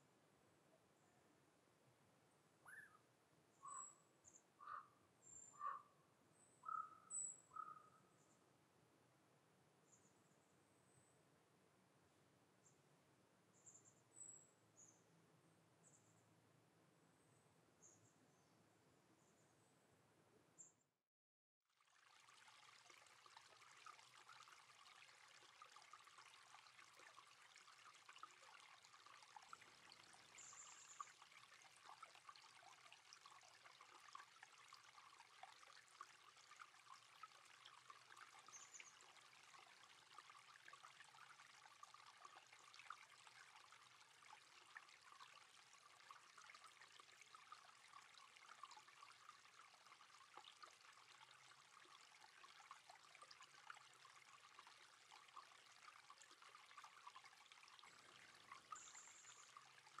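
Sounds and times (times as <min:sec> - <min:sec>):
forest creek trickling: 0:02.6 - 0:08.6, 0:21.7 - 1:00.0.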